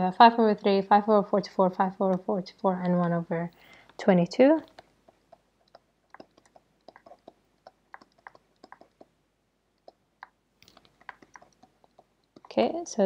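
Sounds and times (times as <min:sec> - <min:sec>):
stylus tapping on tablet screen: 0:04.6 - 0:09.2, 0:09.8 - 0:12.8.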